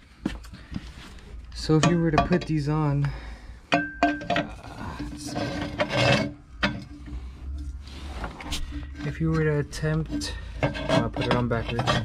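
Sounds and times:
metal knocking with ring: 3.7s - 4.6s
metal scraping on wood: 3.8s - 12.0s.

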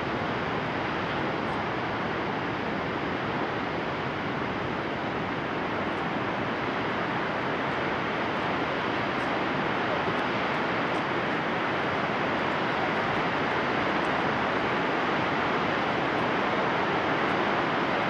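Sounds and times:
rushing river white water: 0.0s - 18.0s.

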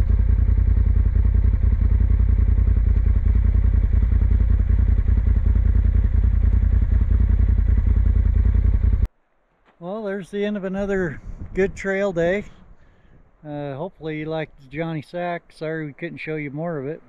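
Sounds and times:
utility vehicle engine rumbling: 0.0s - 9.1s.

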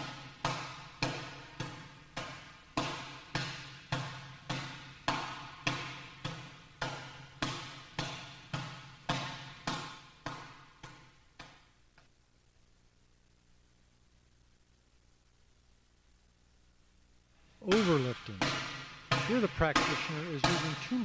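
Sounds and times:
open-hand slaps on training bag: 0.0s - 11.7s.

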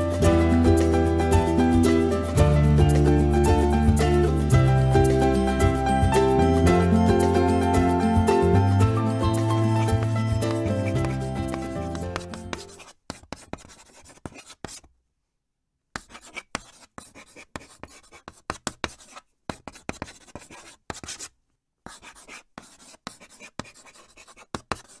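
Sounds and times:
background music: 0.0s - 12.8s
chalk scratching on blackboard: 9.2s - 14.9s, 16.0s - 21.3s, 21.9s - 25.0s.

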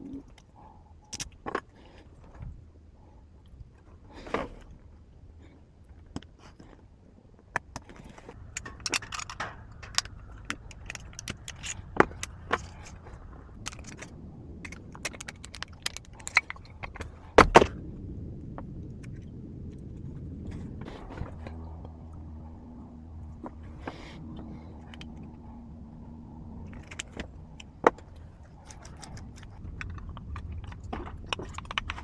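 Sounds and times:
metal lock parts clicking: 7.7s - 17.1s.

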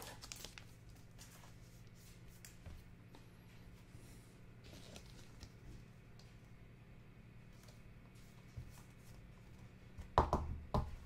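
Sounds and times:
trading cards clicking and rustling: 0.0s - 1.6s
faint room hum: 0.0s - 11.0s.

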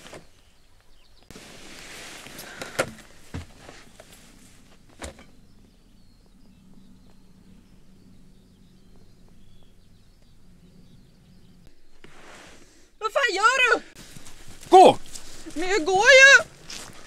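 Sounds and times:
low steady hum: 0.5s - 13.0s
faint bird chirps: 5.2s - 12.0s.

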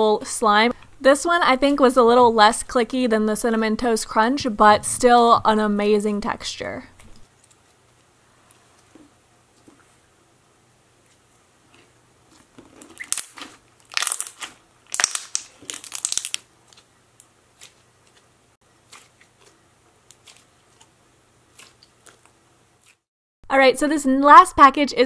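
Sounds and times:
slime clicking and crackling: 12.3s - 18.2s.

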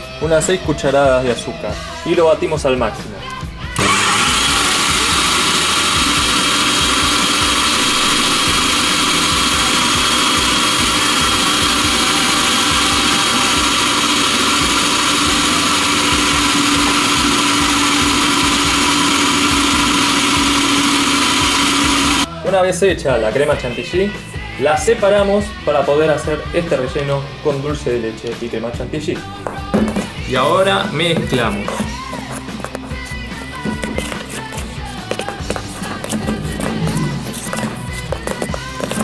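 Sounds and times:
stand mixer motor whirring: 3.8s - 22.3s, 30.4s - 39.0s.

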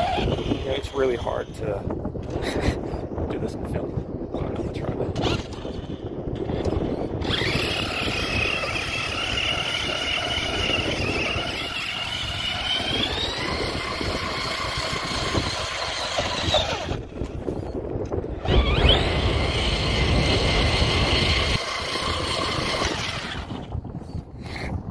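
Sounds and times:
electric motor whining: 0.0s - 1.4s, 6.4s - 17.7s, 18.3s - 23.9s.

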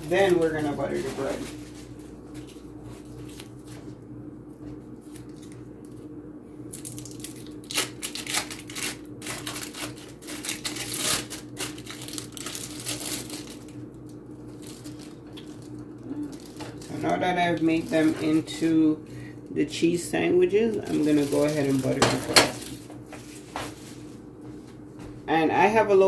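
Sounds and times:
plastic packaging crinkling: 0.0s - 3.9s, 6.7s - 18.8s, 20.6s - 24.1s
steady low hum: 0.0s - 26.0s.

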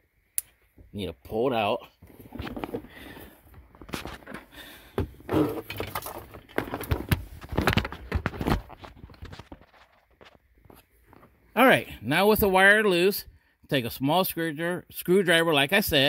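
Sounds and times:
plastic and wiring clicking and rustling: 2.0s - 11.3s.

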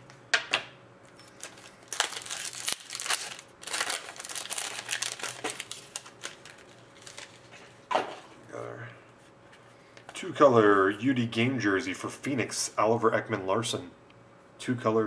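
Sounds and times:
foil wrapper crinkling: 1.3s - 7.8s
foil wrapper tearing: 1.4s - 7.5s.

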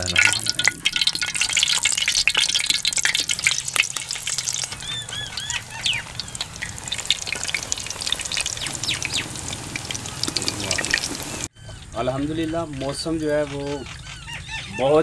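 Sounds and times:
batter sizzling in hot oil: 0.0s - 11.5s.

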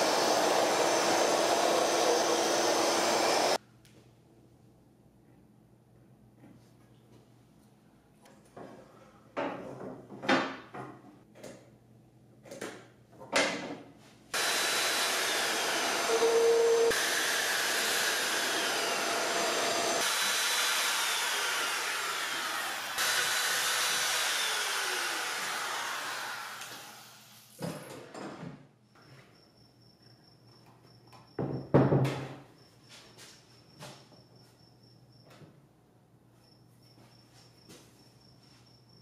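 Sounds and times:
router cutting wood whining: 0.0s - 3.6s, 14.4s - 27.2s.

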